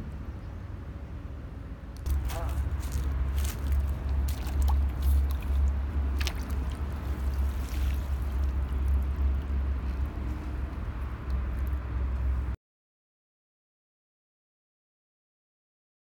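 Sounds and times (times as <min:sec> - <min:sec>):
steady low rumble: 0:00.0 - 0:12.6
water dripping and lapping: 0:02.0 - 0:12.5
fish splashing into water: 0:02.9 - 0:10.2.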